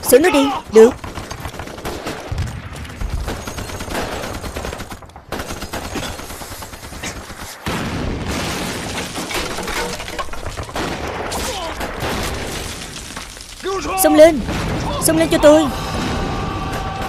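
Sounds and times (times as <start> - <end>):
rapid gunfire: 0.7 - 9.4, 10.4 - 12.9.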